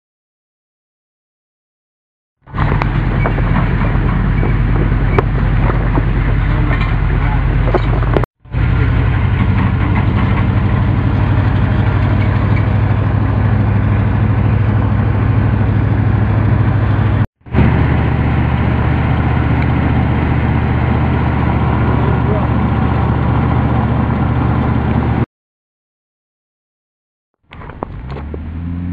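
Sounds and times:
road noise: 2.4 - 25.3, 27.4 - 28.9
vehicle engine hum: 2.5 - 25.3, 27.4 - 28.9.

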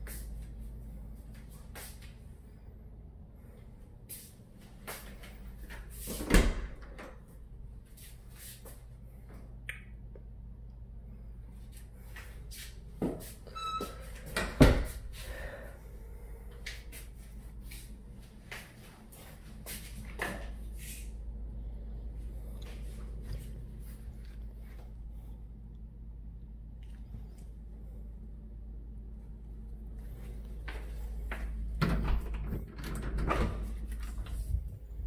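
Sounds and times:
door squeak: 13.5 - 14.7.

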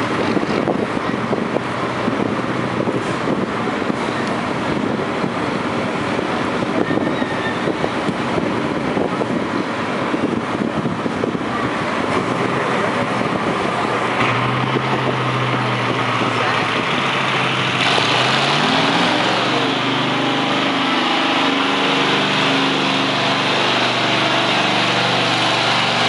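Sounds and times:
tractor engine pulsing under load: 0.0 - 6.8, 7.6 - 26.0
low engine drone: 0.0 - 26.0.

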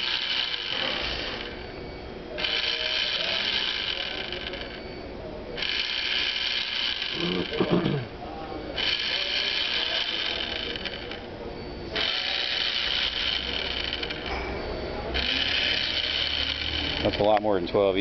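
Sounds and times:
soap dispenser pump whirring: 15.2 - 17.4.

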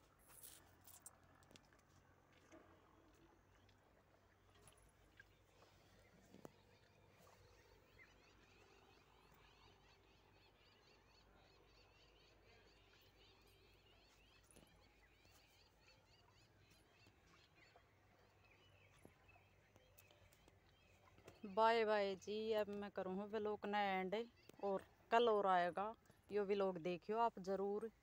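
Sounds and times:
small birds chirping: 3.1 - 21.6.

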